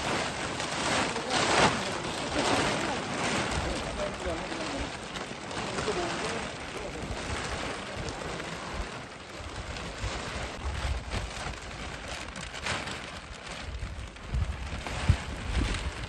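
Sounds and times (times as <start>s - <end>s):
plastic sheet rustling and crackling: 0.0s - 16.0s
wind buffeting microphone: 9.5s - 11.9s, 13.5s - 16.0s.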